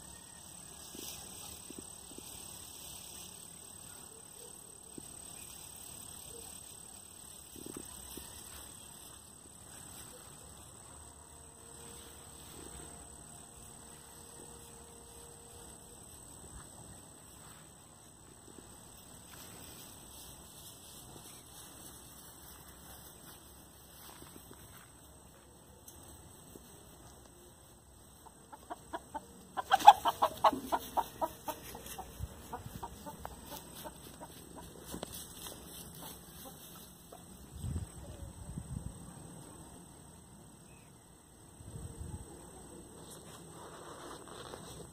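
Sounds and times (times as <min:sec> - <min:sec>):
hen clucking: 0:28.0 - 0:35.1.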